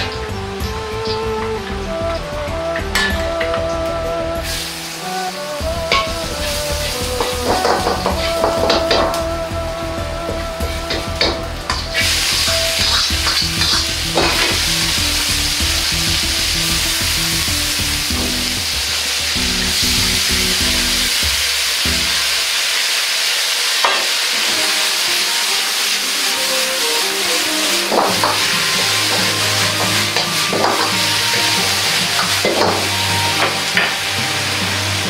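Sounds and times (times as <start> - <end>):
food sizzling in hot oil: 2.8 - 35.0
metal ladle knocking wok: 10.7 - 14.8.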